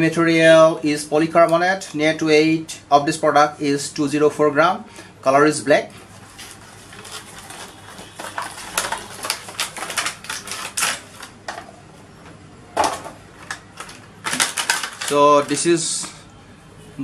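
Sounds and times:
plastic tray crackling: 0:06.0 - 0:11.7, 0:12.8 - 0:16.0.

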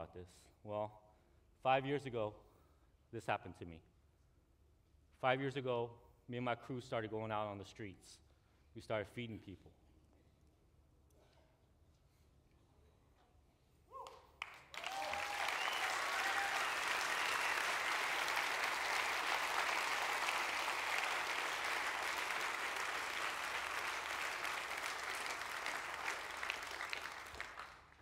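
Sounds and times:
audience applauding: 0:14.4 - 0:28.0.

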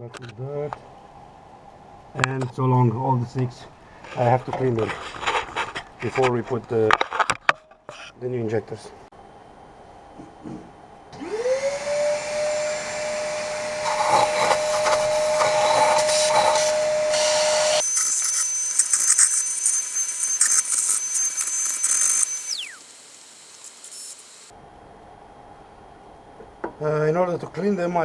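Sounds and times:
vacuum cleaner whine: 0:11.1 - 0:24.6.

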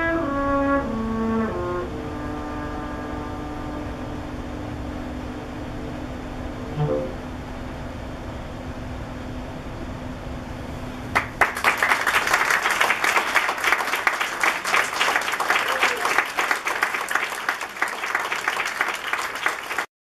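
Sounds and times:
audience applauding: 0:11.1 - 0:19.9.

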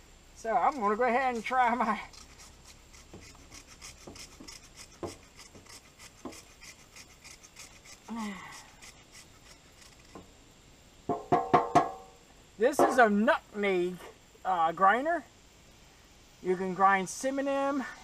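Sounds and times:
wood scraping in a grinder: 0:00.4 - 0:10.3.

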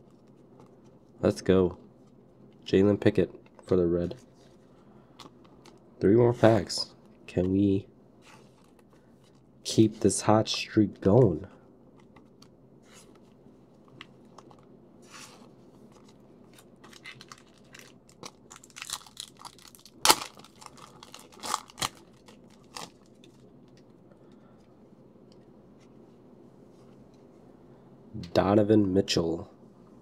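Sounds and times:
foil wrapper crinkling and ripping: 0:16.0 - 0:23.3.

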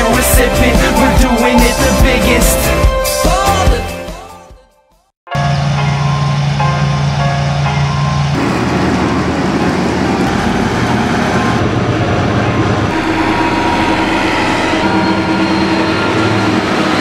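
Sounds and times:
combine harvester diesel engine: 0:05.6 - 0:17.0.

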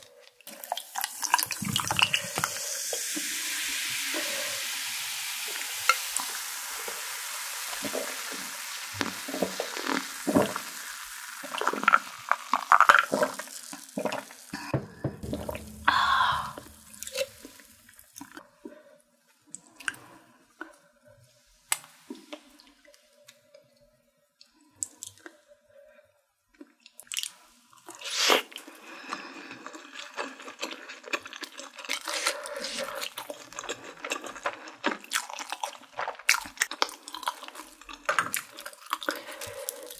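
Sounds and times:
carbonation hissing: 0:00.5 - 0:18.1
soda pouring into glass: 0:00.6 - 0:14.5
chewing and mouth sounds: 0:26.5 - 0:39.9.

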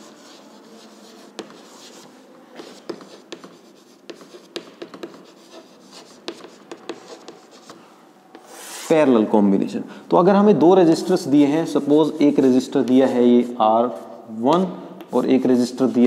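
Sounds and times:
chalk tapping and scratching: 0:00.0 - 0:08.9, 0:11.4 - 0:14.1.

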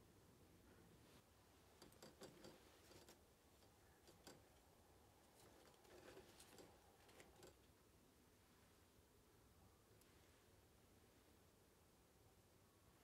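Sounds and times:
chopsticks tapping wire grill: 0:01.7 - 0:04.6, 0:05.3 - 0:07.6.

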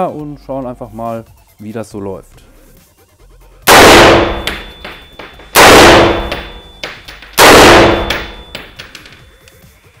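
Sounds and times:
rifle shots echoing indoors: 0:03.7 - 0:08.9.

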